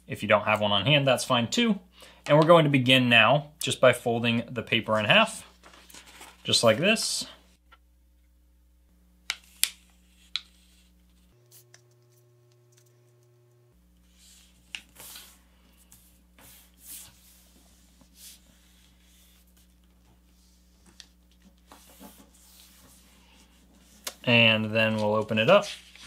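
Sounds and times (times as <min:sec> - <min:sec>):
faint steady hum: 0:00.0 - 0:26.0
paper rustling and sliding: 0:05.5 - 0:06.8, 0:14.1 - 0:26.0.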